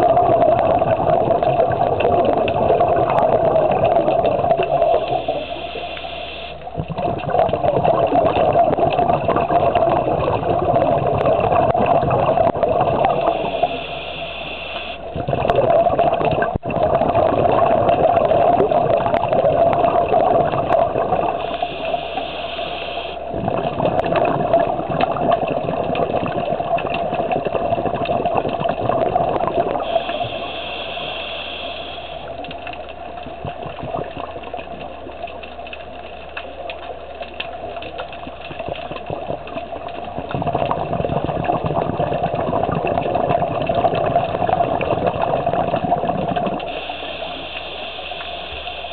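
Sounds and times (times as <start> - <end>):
bubbling exhalations underwater: 0.0 - 36.6, 37.4 - 48.9
regulator hissing inhalation: 5.1 - 6.6, 13.2 - 15.0, 21.4 - 23.2, 29.8 - 32.3, 46.7 - 48.9.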